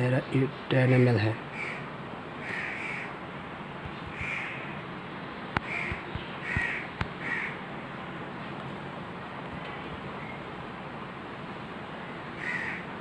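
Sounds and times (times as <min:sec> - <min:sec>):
crows cawing: 0:00.9 - 0:03.2, 0:04.1 - 0:04.8, 0:05.6 - 0:07.6, 0:12.3 - 0:13.0.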